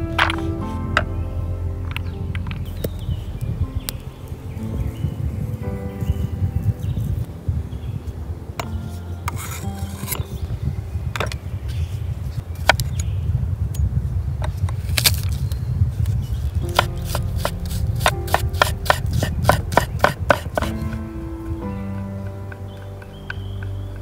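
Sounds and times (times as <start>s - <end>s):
steady low rumble: 0.0s - 24.0s
knife chopping on wooden board: 16.7s - 20.9s.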